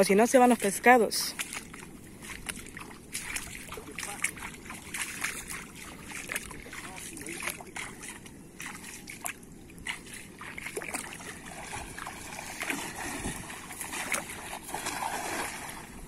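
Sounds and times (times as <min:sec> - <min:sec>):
shallow water splashing around legs: 0:00.3 - 0:16.0
cast net splashing onto water: 0:09.9 - 0:16.0.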